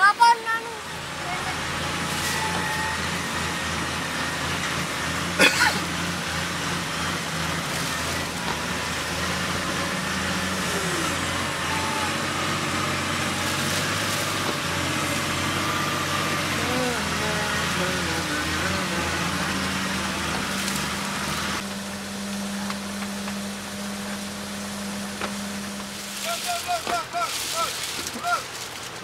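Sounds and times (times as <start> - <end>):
vehicle engine running steadily: 0.0 - 29.0.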